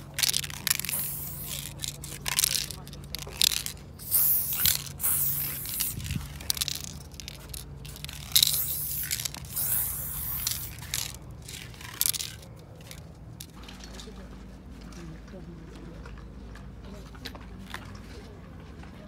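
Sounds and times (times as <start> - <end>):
spray paint can hissing: 0.0 - 13.0.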